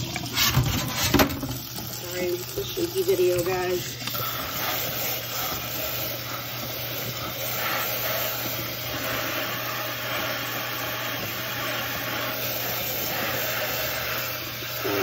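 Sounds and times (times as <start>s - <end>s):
faucet water splashing into sink: 0.0s - 15.0s.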